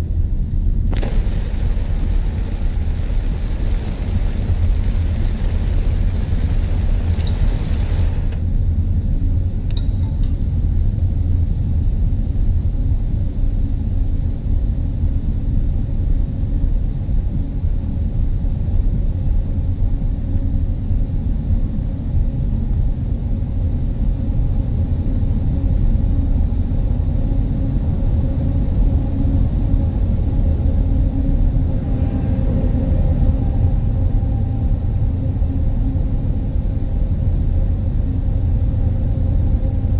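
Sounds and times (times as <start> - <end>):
hiss: 0.9 - 8.4
traffic rumble: 0.9 - 8.4
faint hum: 0.9 - 8.6.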